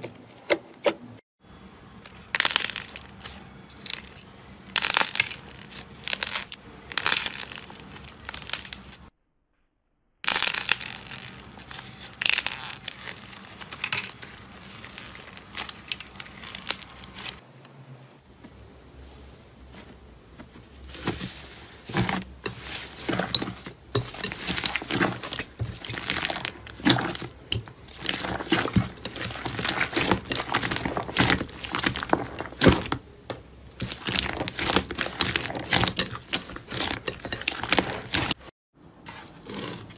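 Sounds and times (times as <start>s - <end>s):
slime crackling and crinkling: 2.0s - 9.1s, 10.2s - 17.4s, 19.7s - 39.9s.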